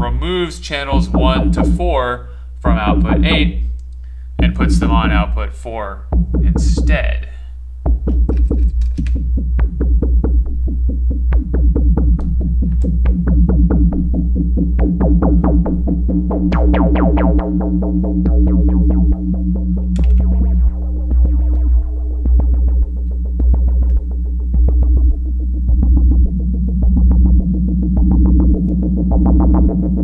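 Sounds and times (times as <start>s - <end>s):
synthesizer short notes: 0.0s - 3.8s, 14.9s - 25.4s
low pulsing bass: 0.0s - 30.0s.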